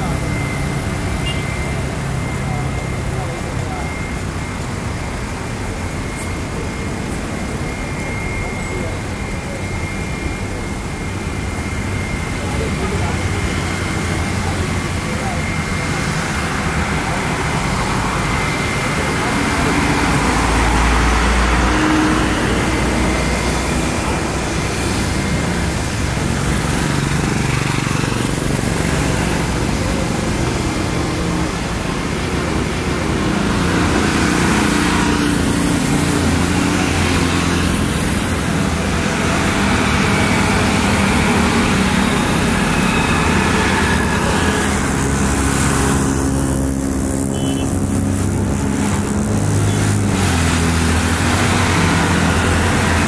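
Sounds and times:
loud engine drone and roar: 0.0 - 53.0.

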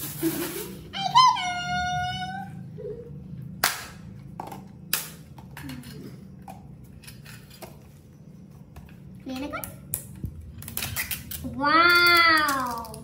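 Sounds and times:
plastic pots clicking and knocking: 11.5 - 13.0.

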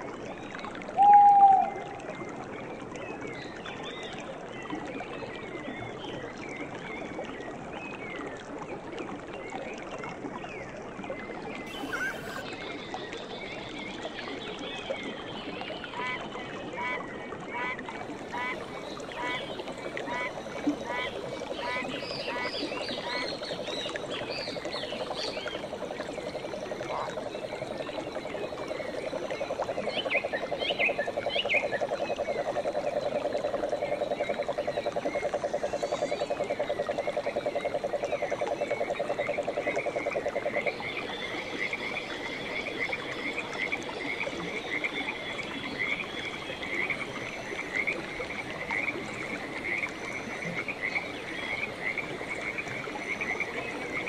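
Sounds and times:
whistling animal calls: 11.7 - 12.4.

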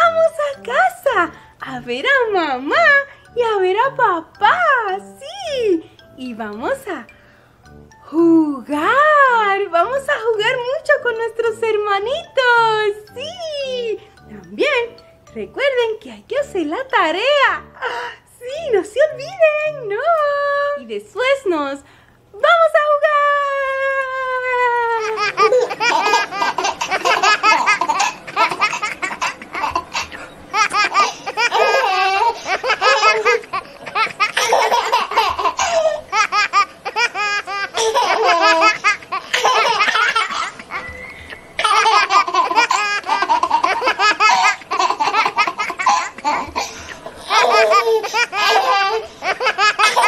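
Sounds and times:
young child laughing: 25.0 - 40.9, 41.6 - 50.0.

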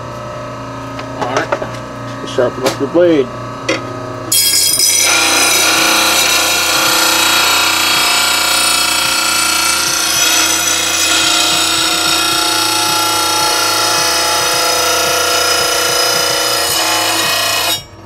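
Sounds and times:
motor hum: 0.0 - 18.0
grinding wheel grinding metal: 4.3 - 18.0.

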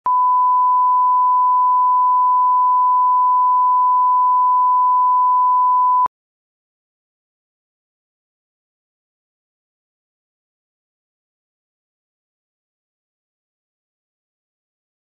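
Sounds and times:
steady sine test tone: 0.1 - 6.1.

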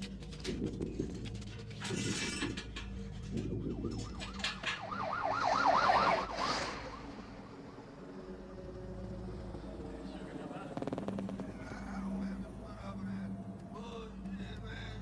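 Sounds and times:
emergency vehicle siren yelping: 3.4 - 8.1.

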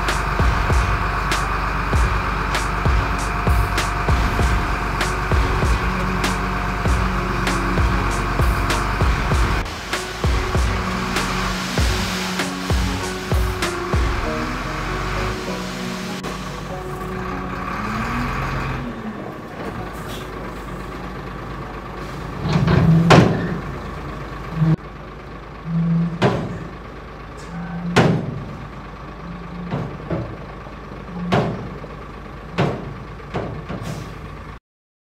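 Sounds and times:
truck engine running: 0.0 - 34.6
sharp bangs from truck body: 22.5 - 23.6, 26.2 - 26.7, 28.0 - 28.5, 31.3 - 31.7, 32.5 - 34.2.

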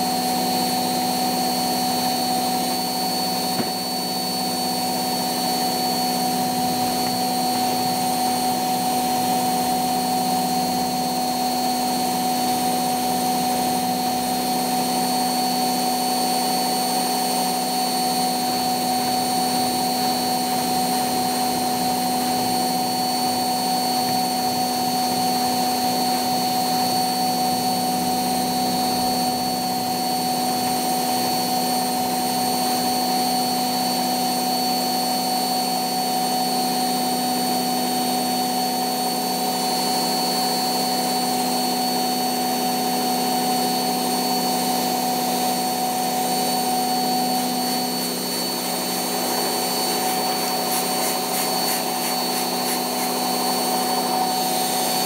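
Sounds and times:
washing machine spinning: 0.0 - 35.2, 37.0 - 55.0.

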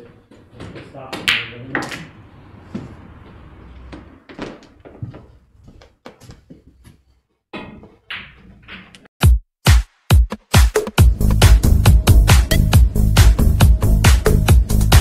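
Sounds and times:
electronic dance music: 9.2 - 15.0.

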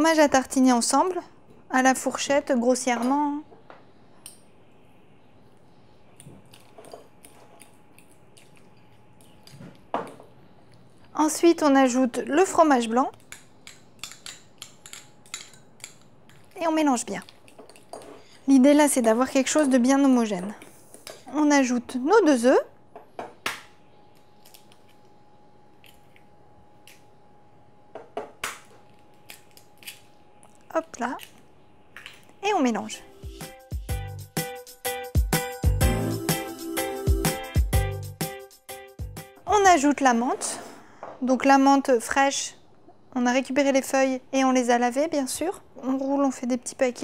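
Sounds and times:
fork tapping glass bowl: 13.3 - 16.4.

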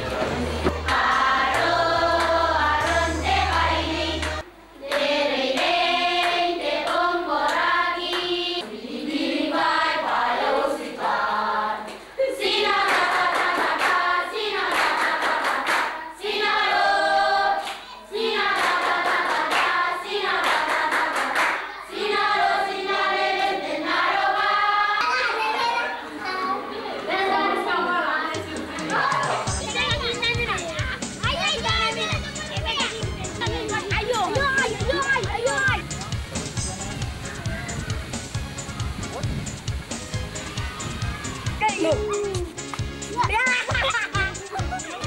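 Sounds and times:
girls singing together: 0.0 - 25.9
hands clapping: 0.2 - 8.4, 12.7 - 14.0, 14.6 - 16.0, 17.6 - 21.7, 41.9 - 45.0.

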